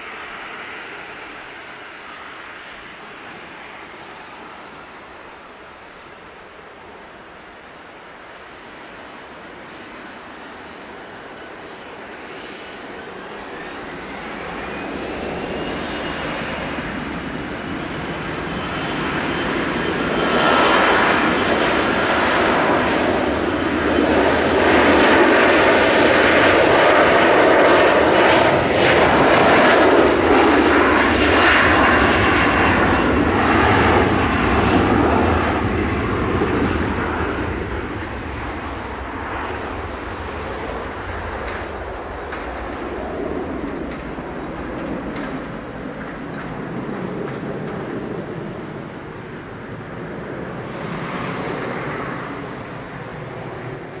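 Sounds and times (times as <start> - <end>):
jet engines spooling up: 0.0 - 6.3, 8.6 - 54.0
rising engine whine: 12.2 - 54.0.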